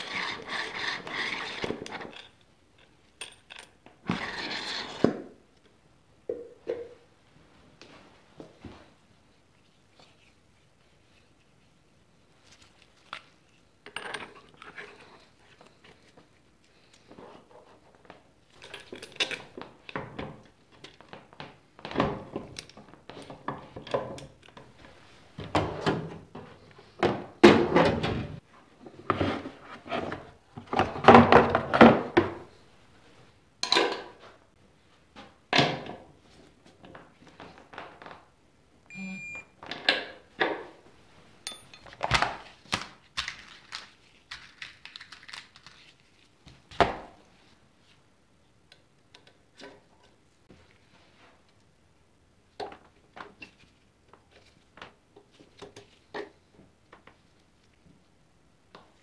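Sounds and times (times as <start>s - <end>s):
electronic beep: 38.9s - 39.5s
tools knocking and clattering: 41.5s - 42.2s.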